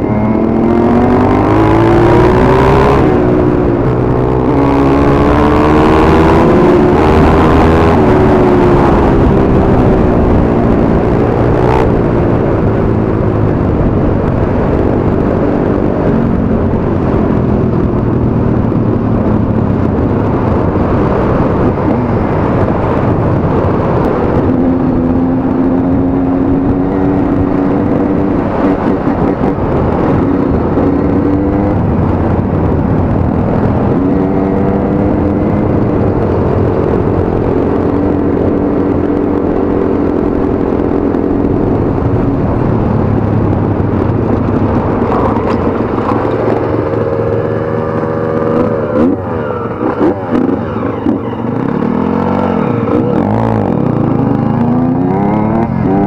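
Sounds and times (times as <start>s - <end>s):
steady rushing noise: 0.0s - 56.0s
dirt bike engine revving: 44.3s - 56.0s.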